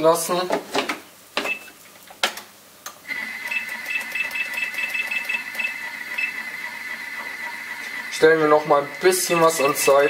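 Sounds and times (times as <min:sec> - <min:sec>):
mixer motor whining and ticking: 0:03.0 - 0:10.0.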